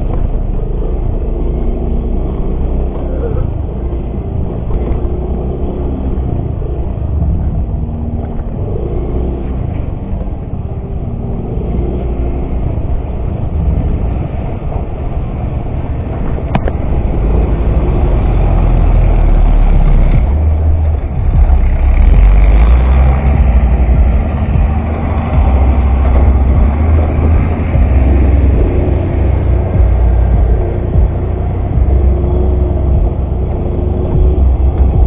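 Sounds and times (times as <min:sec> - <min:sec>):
heavy low rumble: 0:00.0 - 0:35.0
scooter engine running: 0:15.8 - 0:35.0.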